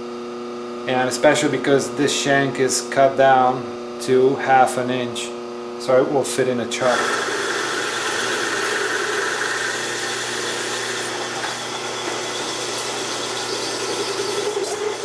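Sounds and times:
end mill cutting metal: 6.8 - 15.0.

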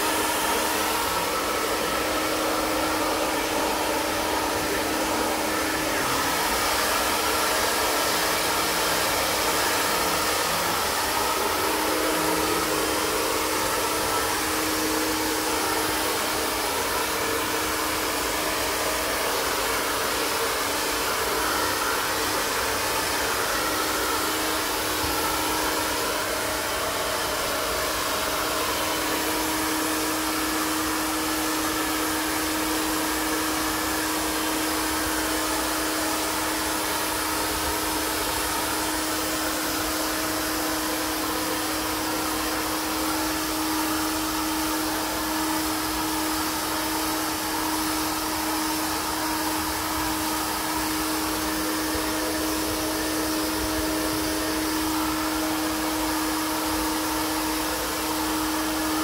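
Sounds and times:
handheld blower running: 0.0 - 59.0.

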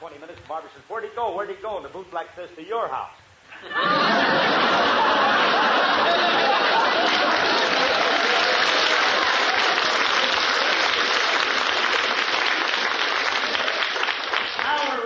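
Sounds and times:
audience laughing: 3.5 - 11.2
audience applauding: 3.8 - 15.0.

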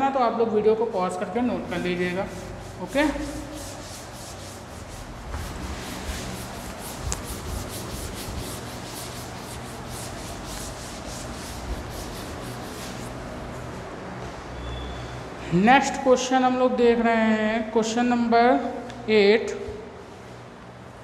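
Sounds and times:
eraser rubbing on chalkboard: 1.6 - 13.3.

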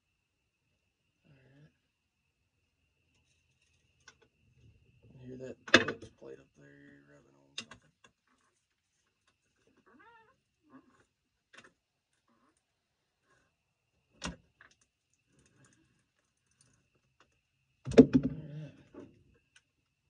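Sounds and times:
faint squeaks: 8.2 - 11.3, 12.1 - 13.6.

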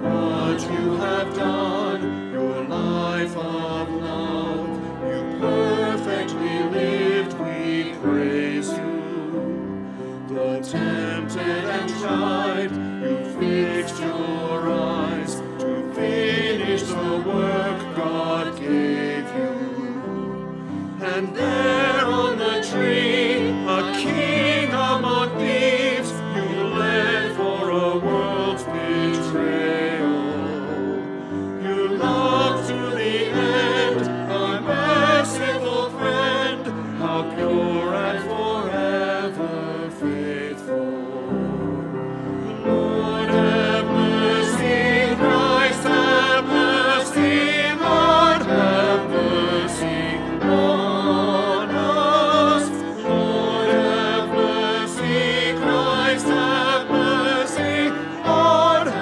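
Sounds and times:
instrumental accompaniment: 0.0 - 59.0
voices singing with vibrato: 0.0 - 59.0.

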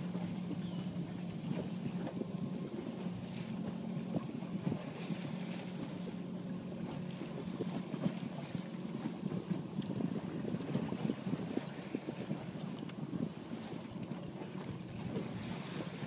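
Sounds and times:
water lapping against hull: 0.0 - 16.0
wind on microphone: 0.0 - 16.0.

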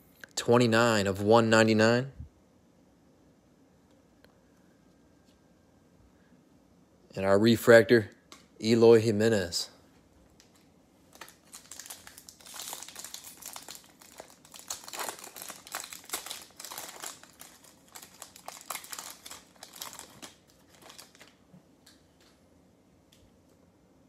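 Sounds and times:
foil wrapper tearing and crinkling: 10.4 - 21.4.

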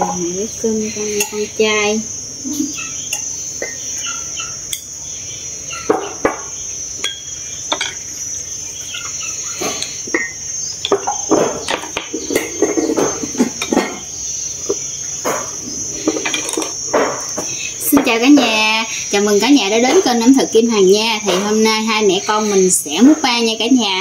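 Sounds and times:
insects droning: 0.0 - 24.0
ladle clinking on porcelain bowls: 7.0 - 8.1, 9.0 - 14.1.

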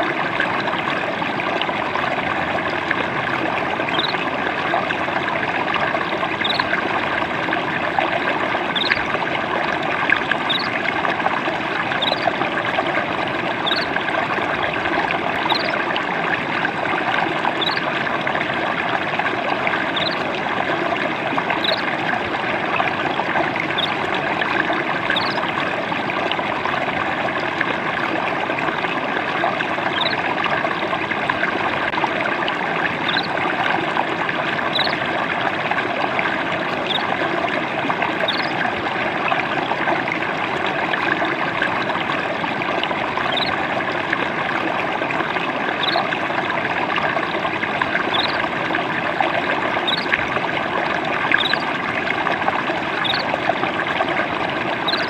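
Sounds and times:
water trickling and splashing: 0.0 - 55.0.

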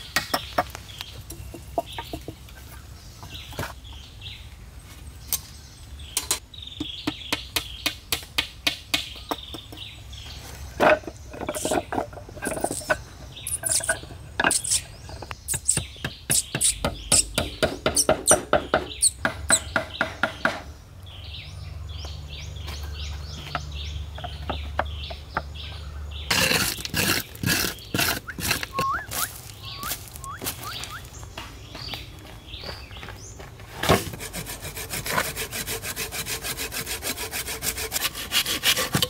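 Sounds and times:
birds chirping: 0.0 - 38.9
wooden poles knocking: 10.8 - 13.1, 23.4 - 25.5.

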